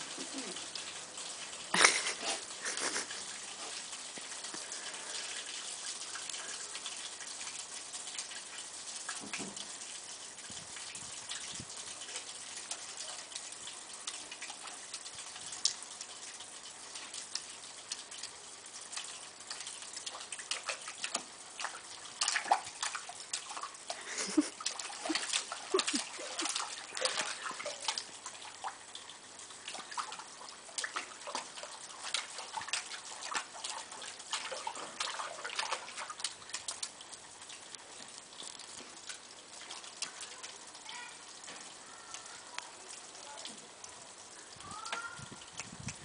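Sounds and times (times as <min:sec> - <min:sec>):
dog pawing in muddy water: 0:18.9 - 0:28.6, 0:29.7 - 0:36.8.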